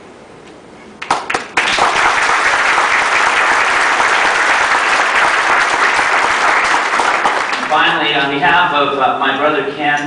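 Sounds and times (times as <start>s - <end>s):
audience applause: 1.0s - 8.0s.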